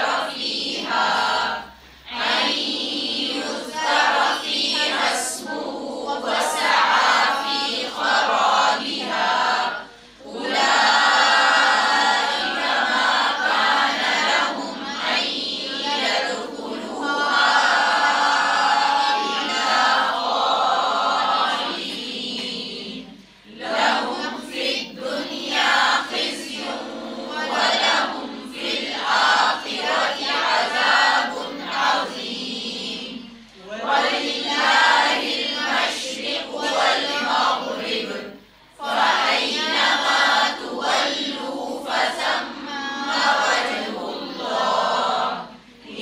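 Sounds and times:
group reciting in unison: 0.0s - 46.0s.

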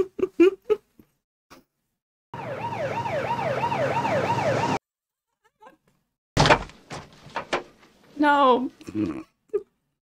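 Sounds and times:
ambulance siren yelping: 2.4s - 4.8s.

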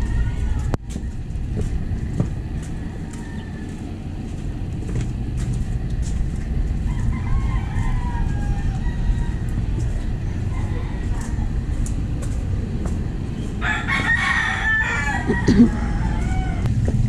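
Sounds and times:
rooster crowing: 0.0s - 4.3s, 6.7s - 12.2s, 13.4s - 17.0s
distant traffic hum: 0.0s - 17.0s.

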